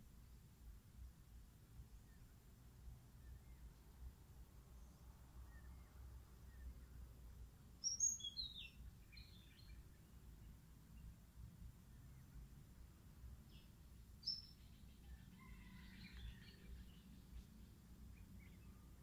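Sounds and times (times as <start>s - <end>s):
faint low outdoor rumble: 0.0s - 19.0s
bird chirping: 7.8s - 11.2s, 13.4s - 19.0s.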